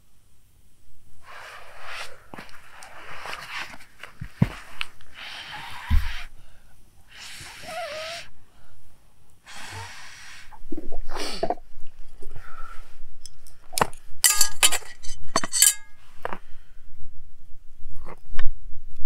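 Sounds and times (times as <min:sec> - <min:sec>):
camp cookware clinking: 0:14.2 - 0:15.9.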